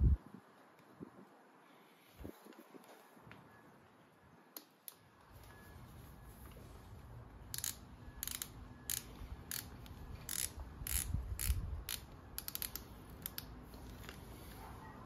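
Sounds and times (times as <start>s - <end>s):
socket ratchet clicking: 7.5s - 13.5s.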